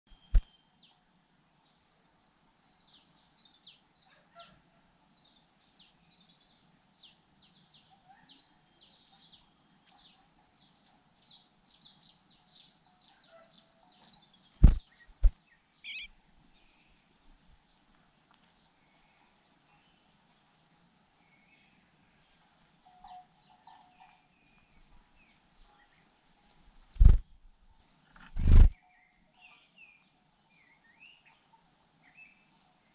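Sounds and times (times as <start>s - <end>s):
chick begging chirps: 15.9s - 16.1s.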